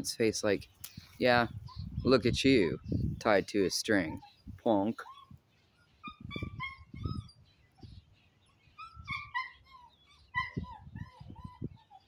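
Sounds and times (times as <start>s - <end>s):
dog whining: 5.0s - 7.4s, 8.8s - 12.0s.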